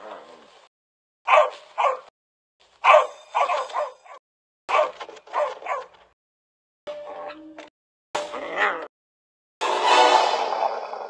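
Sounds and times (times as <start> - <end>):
dog barking and yipping: 1.3 - 2.1, 2.8 - 6.0.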